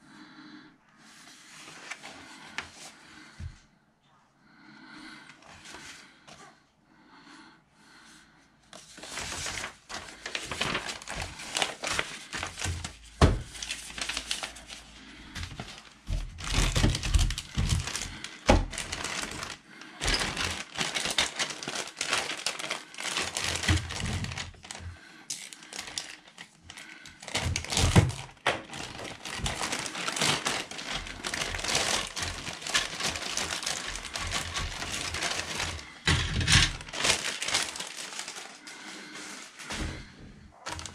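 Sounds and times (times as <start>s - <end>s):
plastic bags crinkling: 8.8s - 40.9s.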